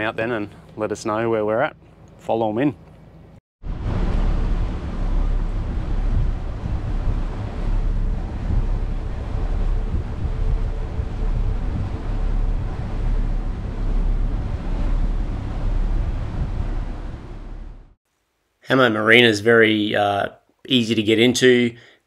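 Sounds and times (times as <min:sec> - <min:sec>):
boat engine rumble: 0:00.0 - 0:18.0
rushing water: 0:03.6 - 0:18.0
wind buffeting microphone: 0:03.6 - 0:18.0.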